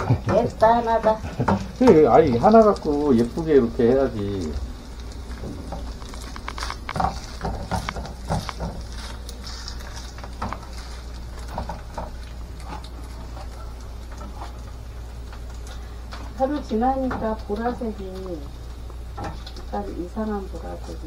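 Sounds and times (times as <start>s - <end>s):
faint sizzle of frying: 0.0s - 21.0s
spatula tapping and scraping a pan: 6.5s - 9.6s.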